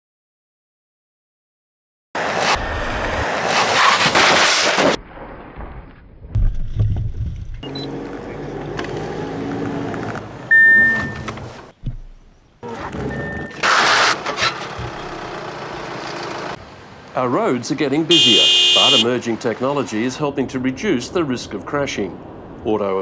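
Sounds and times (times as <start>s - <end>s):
high warning beep: 10.5s - 11.2s, 18.1s - 19.1s.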